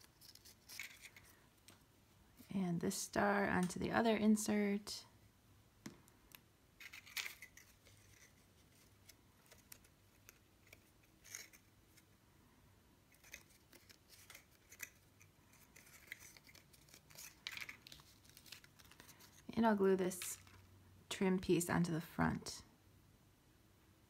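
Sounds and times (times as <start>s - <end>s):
cardstock rustling and scraping: 0.0s - 1.4s, 6.8s - 12.1s, 13.1s - 19.5s.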